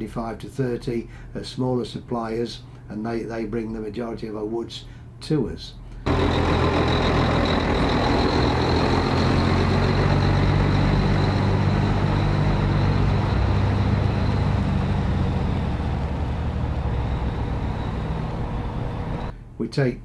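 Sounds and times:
lorry diesel engine driving past: 6.1s - 19.4s.

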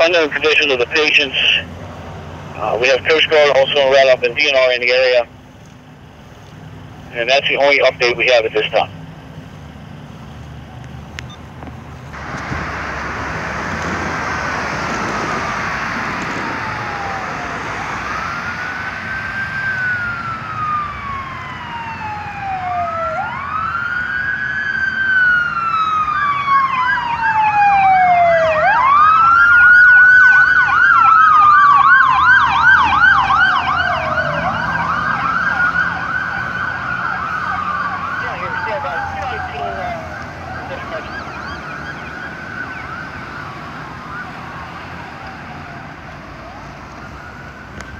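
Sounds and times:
siren wailing: 0.0s - 1.7s, 2.5s - 5.3s, 12.2s - 47.9s
siren yelping: 0.0s - 1.7s, 2.6s - 5.3s, 12.2s - 47.9s
steady rushing noise: 12.0s - 20.2s.

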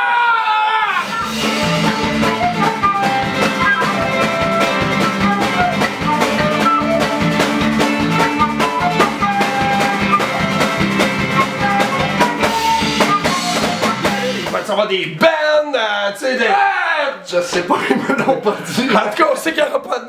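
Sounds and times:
flute melody: 0.8s - 14.7s
drum kit beat: 0.9s - 15.2s
electric bass: 1.0s - 14.6s.

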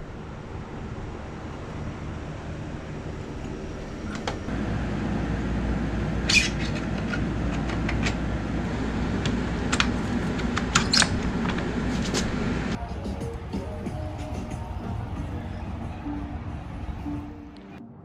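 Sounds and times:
steady low rumble: 0.0s - 17.6s
bike metallic clicks and clatters: 9.2s - 12.4s.

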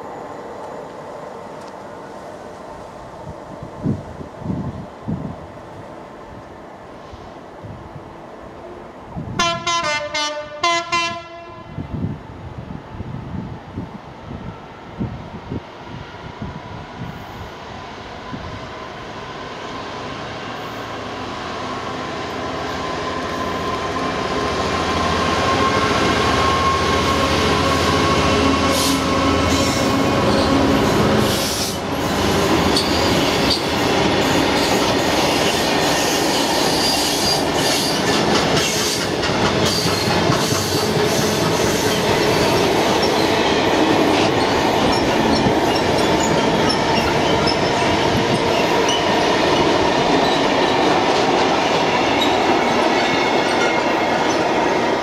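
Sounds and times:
diesel locomotive engine: 0.0s - 55.0s
train wheel squeal: 22.2s - 51.2s, 51.8s - 54.8s
wheels clicking over rail joints: 36.8s - 43.5s.

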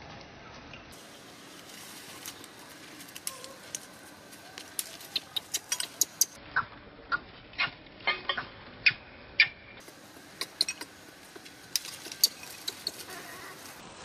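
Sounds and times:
sharp ticks and clicks: 4.6s - 6.4s, 10.2s - 13.1s.

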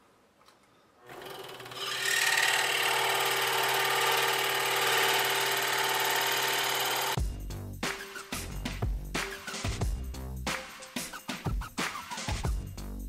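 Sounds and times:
scroll saw cutting wood: 1.0s - 7.2s.

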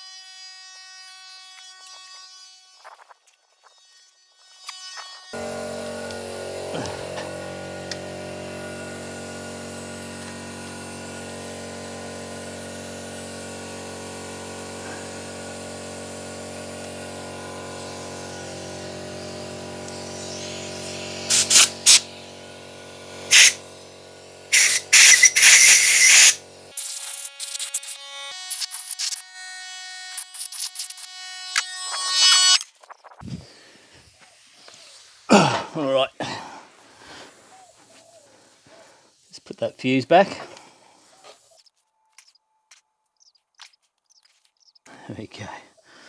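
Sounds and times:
compressed air blasts: 5.4s - 27.8s
air compressor humming: 5.4s - 29.2s.

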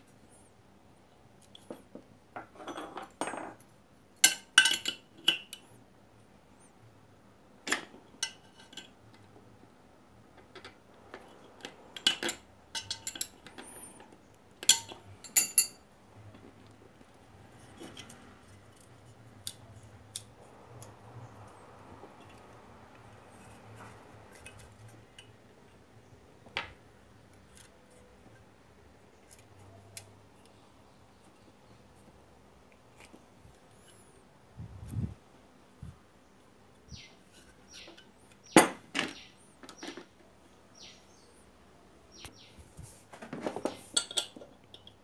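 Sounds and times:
metal parts and tools clinking: 11.2s - 15.8s, 43.2s - 45.0s.

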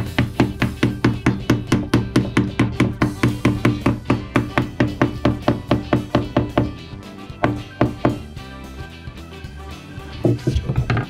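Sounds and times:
rubber mallet tapping on wood: 0.0s - 6.8s, 7.4s - 8.2s
music: 0.0s - 11.0s.

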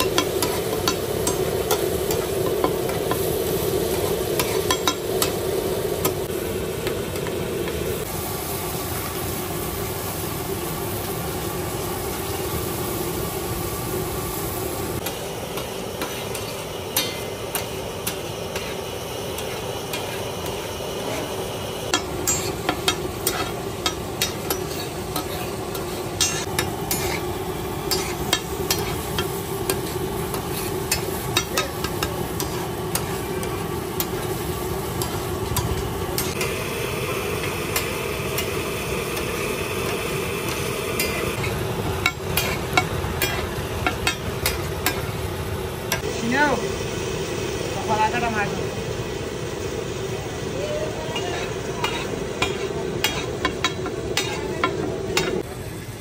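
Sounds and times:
food sizzling on griddle: 0.0s - 56.0s
metal spatula scraping griddle: 15.0s - 21.4s, 22.0s - 34.3s, 39.2s - 45.0s, 51.2s - 55.4s.

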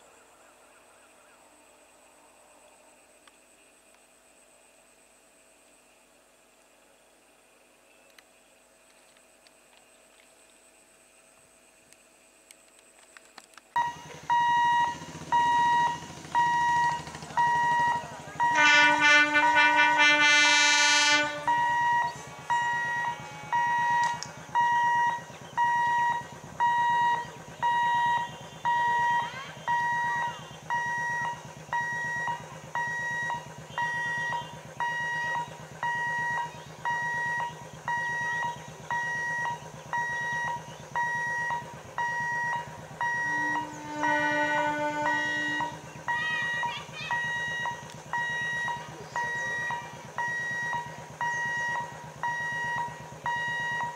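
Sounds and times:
repeating electronic beep: 13.8s - 18.6s, 21.5s - 43.7s, 46.1s - 53.9s
train horn: 17.8s - 24.2s, 43.0s - 47.4s.

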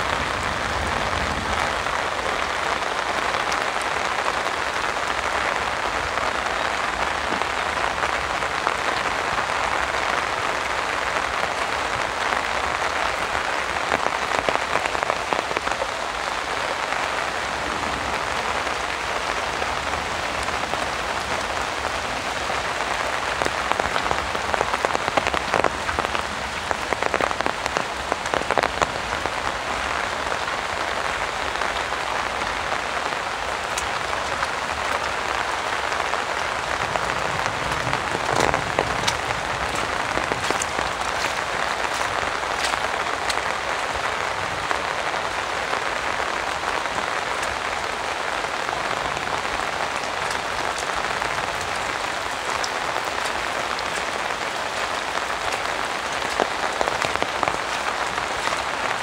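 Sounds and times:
heavy rain falling: 0.0s - 59.0s
sharp raindrop strikes: 0.0s - 59.0s.

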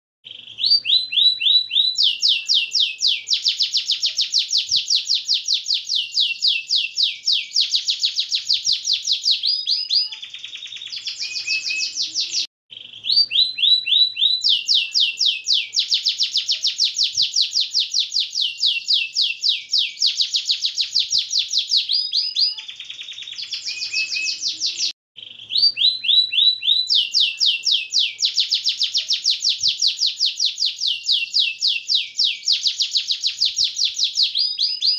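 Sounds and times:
canary singing trills: 0.2s - 34.9s.

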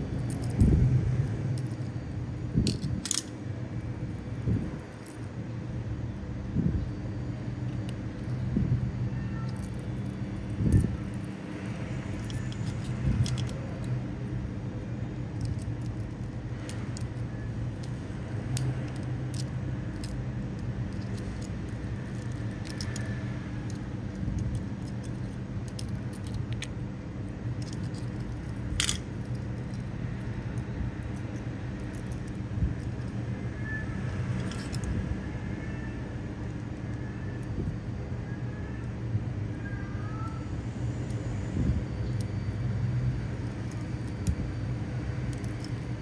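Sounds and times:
steady low hum: 0.0s - 46.0s
small metallic clicks and clinks: 12.1s - 14.0s, 15.4s - 26.7s, 27.5s - 33.2s, 34.4s - 34.9s, 45.3s - 45.9s.

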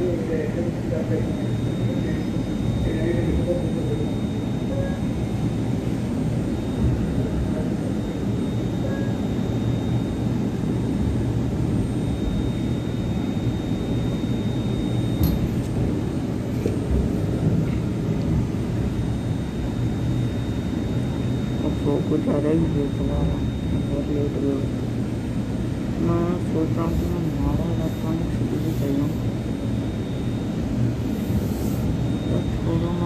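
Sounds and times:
train rumbling on track: 15.2s - 18.9s.

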